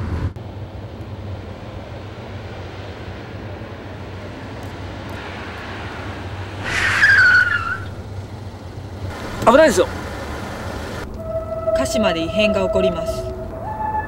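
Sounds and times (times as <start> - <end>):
road rumble: 0.0 - 14.0
tyres squealing: 6.6 - 8.2.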